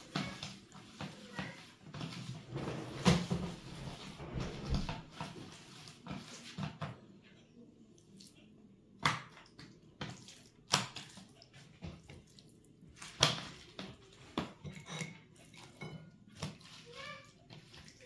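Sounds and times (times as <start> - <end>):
hands squelching marinade into fish: 8.0 - 14.6, 15.4 - 18.0.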